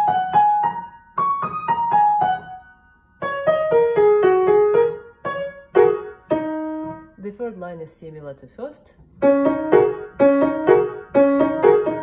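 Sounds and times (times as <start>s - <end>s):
slow piano runs: 9.2s - 12.0s.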